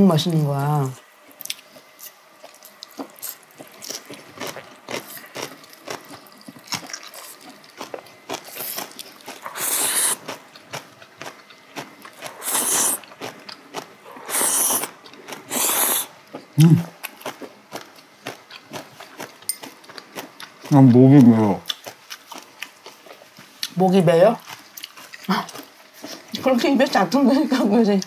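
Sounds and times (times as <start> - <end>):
wet chewing: 1.3 - 26.5
loud slurps of noodles: 9.5 - 10.2, 12.4 - 13.0, 14.2 - 14.9, 15.5 - 16.1.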